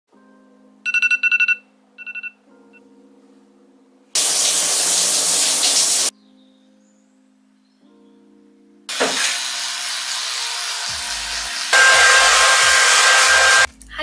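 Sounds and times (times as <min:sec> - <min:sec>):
phone alarm beeping: 0:00.9 - 0:02.4
shower running: 0:04.2 - 0:06.1, 0:08.9 - 0:13.7.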